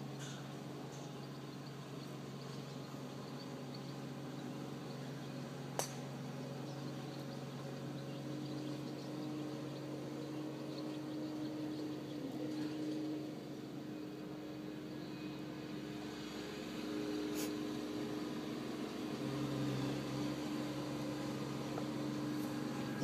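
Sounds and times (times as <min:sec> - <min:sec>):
outdoor background hiss: 0:00.0 - 0:23.0
steady low hum: 0:00.0 - 0:23.0
golf club striking ball: 0:05.7 - 0:06.1.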